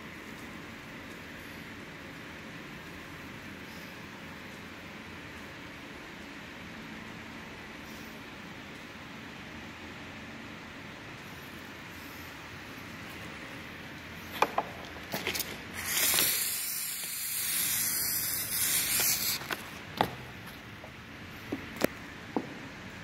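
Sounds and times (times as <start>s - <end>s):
sprayer hissing: 15.8s - 19.7s.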